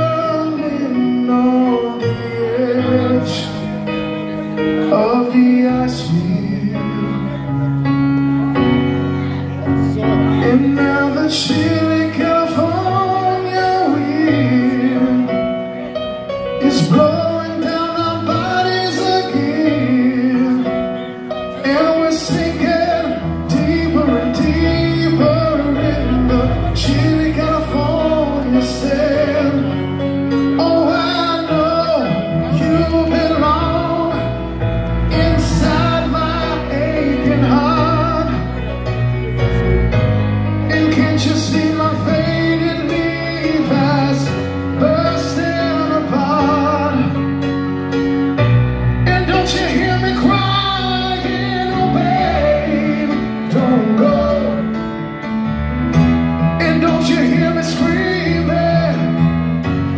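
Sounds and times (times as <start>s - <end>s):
rock band playing a ballad: 0.0s - 59.9s
man singing long notes: 16.6s - 40.0s, 40.6s - 47.4s, 49.0s - 55.1s, 56.4s - 59.9s.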